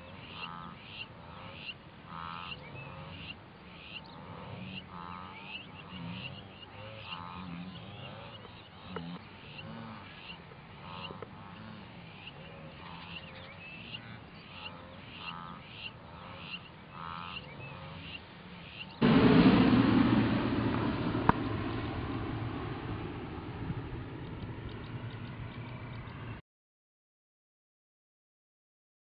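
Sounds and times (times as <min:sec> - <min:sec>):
wildebeest honking grunts: 0:00.0 - 0:18.8.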